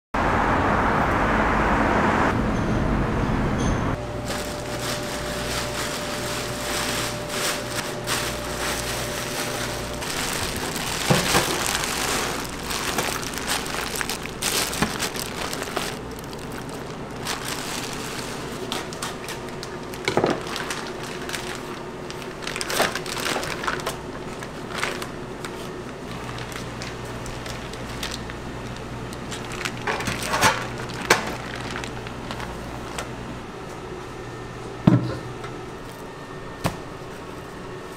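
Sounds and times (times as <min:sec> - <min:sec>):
kitchen hum: 0:03.6 - 0:37.9
plastic bags crinkling: 0:04.0 - 0:33.2.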